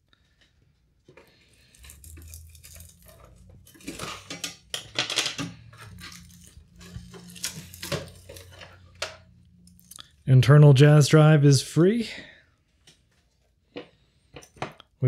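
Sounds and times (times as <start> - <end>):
metallic scraping and clatter: 1.1 - 11.2.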